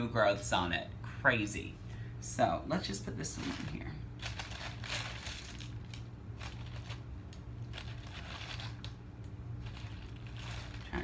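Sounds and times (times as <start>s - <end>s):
steady low hum: 0.0s - 11.0s
potting media crunching: 3.3s - 11.0s.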